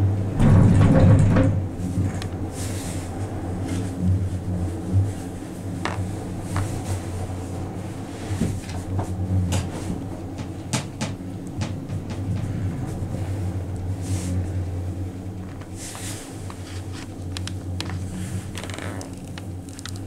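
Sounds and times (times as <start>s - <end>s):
gondola cabin humming: 0.0s - 20.0s
cabin clicks and knocks: 10.3s - 12.5s.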